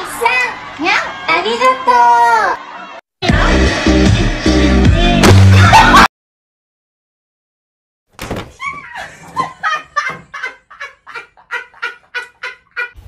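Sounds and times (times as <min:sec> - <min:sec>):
person laughing: 0:05.5 - 0:06.1, 0:08.6 - 0:13.0.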